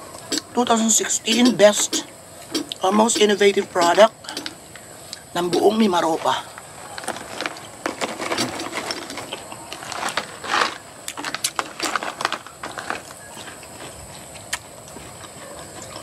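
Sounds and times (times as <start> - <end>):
snack pouch rustling: 6.2 - 14.6
crunching and crackling snacks: 6.2 - 16.0.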